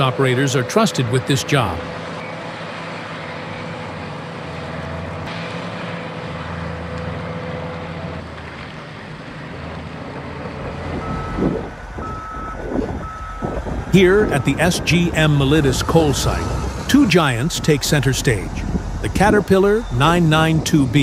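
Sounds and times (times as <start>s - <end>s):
heavy diesel engine running: 0.0s - 21.0s
reversing beeper: 11.0s - 18.5s, 19.5s - 21.0s.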